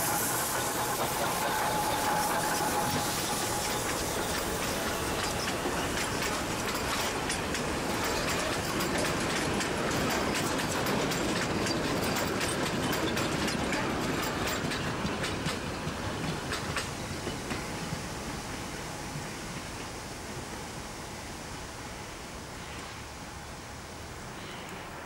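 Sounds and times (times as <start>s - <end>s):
train wheels clickety-clack: 0.0s - 20.7s.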